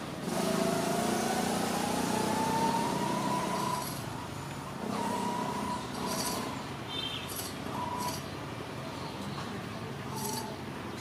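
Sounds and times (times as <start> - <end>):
small engine running: 0.0 - 4.2, 4.8 - 6.6.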